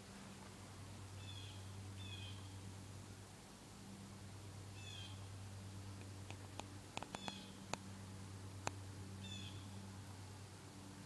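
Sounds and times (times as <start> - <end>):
sharp clicks: 6.0 - 7.8.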